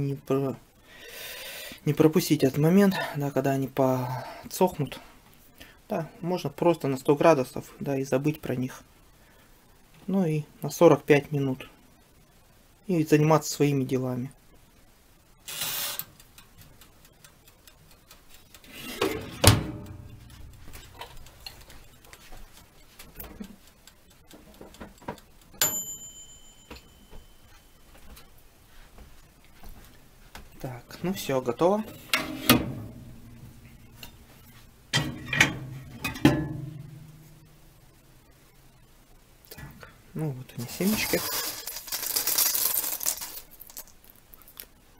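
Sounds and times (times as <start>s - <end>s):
mechanical timer ticking: 15.3s - 28.2s
oven door shutting with clank: 18.8s - 20.3s, 31.9s - 33.4s, 35.0s - 37.0s.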